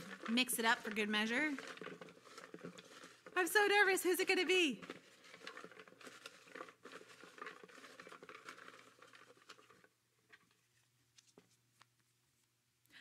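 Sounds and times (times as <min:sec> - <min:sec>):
paper slips rustling and crinkling: 0:00.0 - 0:11.6.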